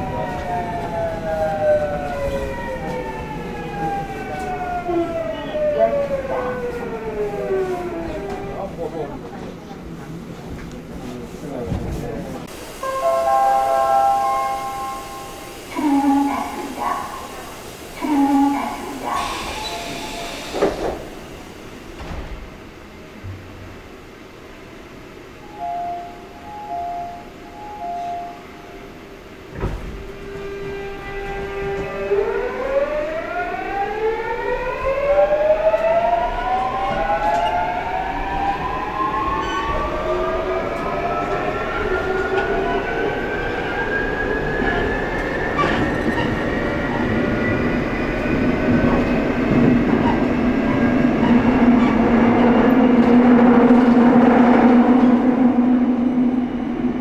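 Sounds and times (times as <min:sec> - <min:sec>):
rail running noise: 0:00.0 - 0:57.0
thump: 0:22.0 - 0:22.5, 0:29.6 - 0:30.0.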